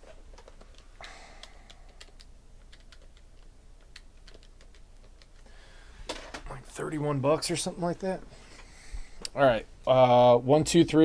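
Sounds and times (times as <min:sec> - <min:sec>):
typing on keyboard: 0:00.4 - 0:05.4.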